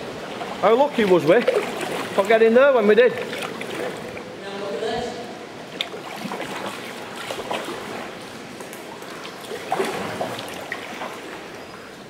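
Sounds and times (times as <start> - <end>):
water trickling and lapping: 0.0 - 12.0
small water drips: 5.7 - 12.0.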